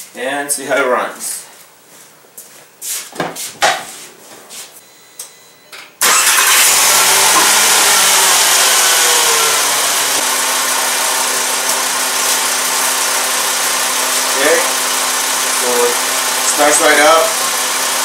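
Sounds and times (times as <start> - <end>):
car engine starting and idling: 6.0 - 18.0.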